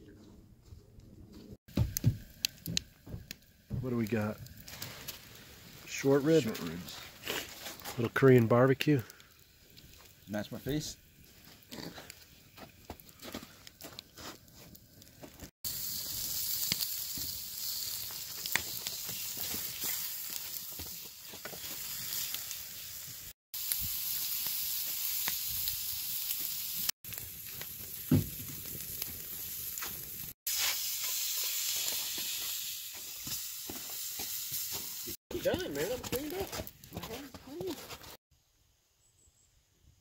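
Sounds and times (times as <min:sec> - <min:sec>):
meat sizzling in a frying pan: 0:15.4 - 0:35.9.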